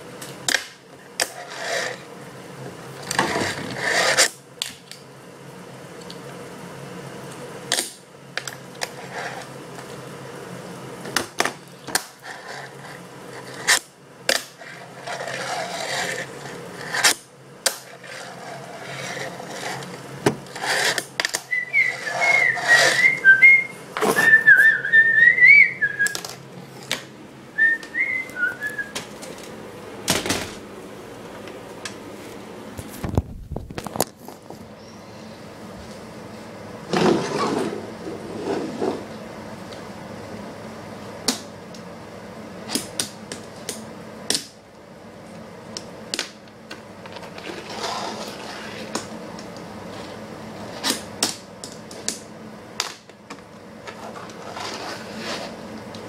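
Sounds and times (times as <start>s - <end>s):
board rolling scrapes: 1.3s - 2.0s, 3.0s - 4.3s, 8.8s - 9.5s, 12.2s - 13.8s, 14.6s - 17.2s, 17.9s - 24.8s, 36.9s - 39.1s, 47.1s - 49.0s, 53.9s - 55.6s
person whistling a tune: 21.5s - 26.2s, 27.6s - 29.0s.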